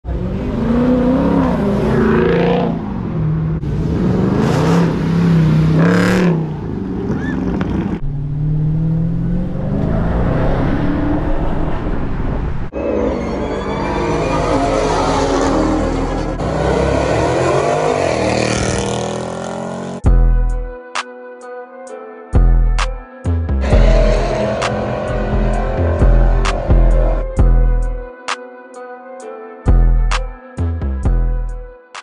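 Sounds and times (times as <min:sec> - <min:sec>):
car engines revving: 0:00.0 - 0:13.0, 0:13.6 - 0:20.0, 0:23.6 - 0:27.8.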